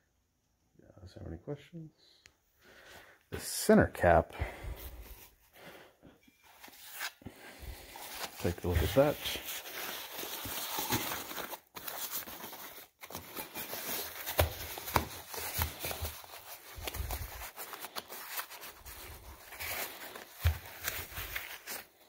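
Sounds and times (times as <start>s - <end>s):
wrapping material crinkling: 6.5s - 22.0s.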